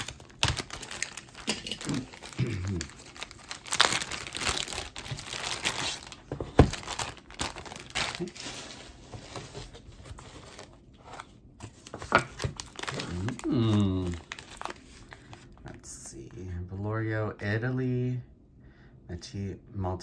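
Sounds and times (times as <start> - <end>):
plastic bags crinkling: 0.0 - 15.6.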